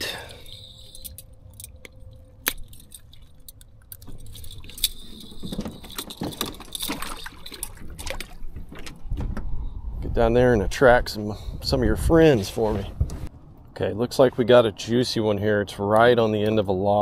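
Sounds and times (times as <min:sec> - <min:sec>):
metal clips clinking and rattling: 0:00.0 - 0:07.9.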